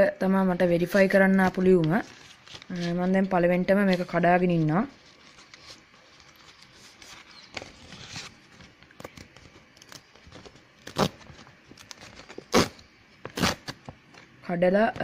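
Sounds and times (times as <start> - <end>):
paper envelope rustling: 0.8 - 12.5
paper ripping: 1.7 - 13.9.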